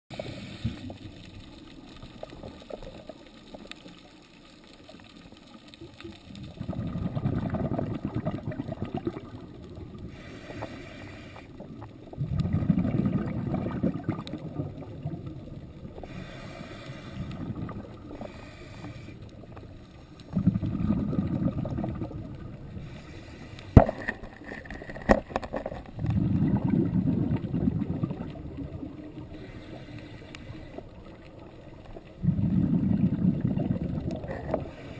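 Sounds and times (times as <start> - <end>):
exhaled air bubbling underwater: 0.1 - 34.9
hissing regulator breaths: 10.1 - 11.6, 16.0 - 17.4, 18.0 - 20.3, 22.7 - 23.8, 29.3 - 31.0.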